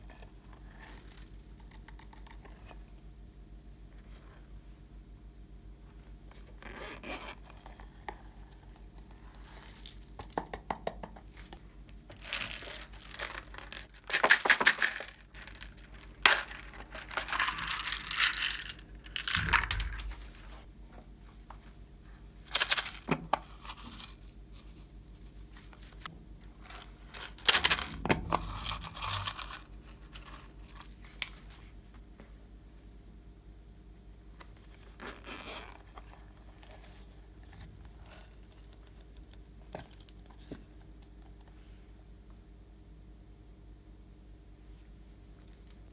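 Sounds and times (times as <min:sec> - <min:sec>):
faint steady hum: 0:00.0 - 0:45.9
plastic beads rattling: 0:12.1 - 0:20.4, 0:22.5 - 0:24.3, 0:26.6 - 0:31.0.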